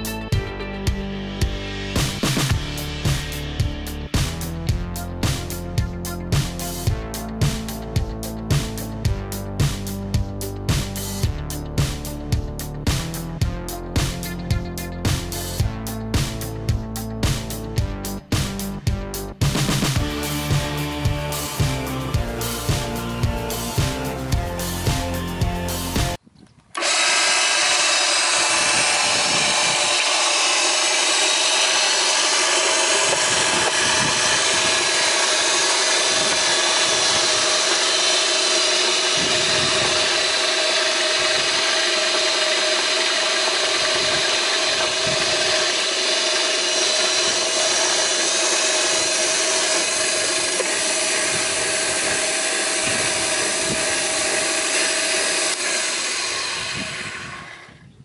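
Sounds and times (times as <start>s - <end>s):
power feeder motor whirring: 19.4s - 58.0s.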